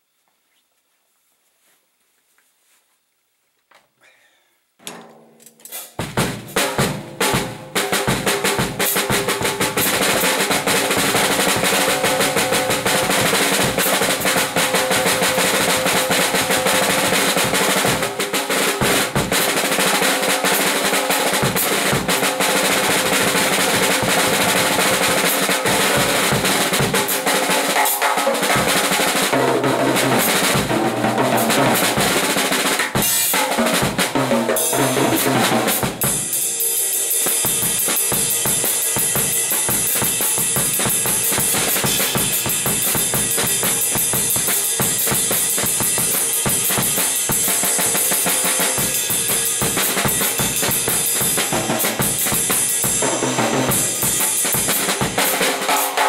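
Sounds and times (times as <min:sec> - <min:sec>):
drum kit rolls: 0:04.8 - 0:56.0.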